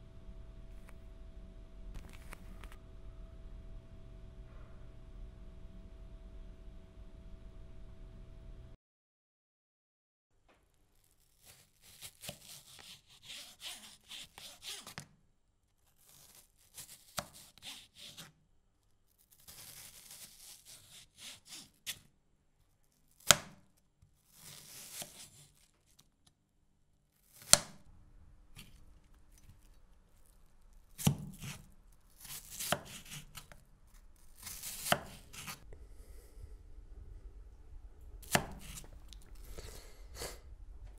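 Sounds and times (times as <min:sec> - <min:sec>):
knife slicing onion: 0:11.0 - 0:15.0, 0:16.0 - 0:18.3, 0:19.3 - 0:22.1, 0:23.1 - 0:23.6, 0:24.3 - 0:25.7, 0:27.2 - 0:27.8, 0:28.6 - 0:35.6, 0:38.2 - 0:39.8.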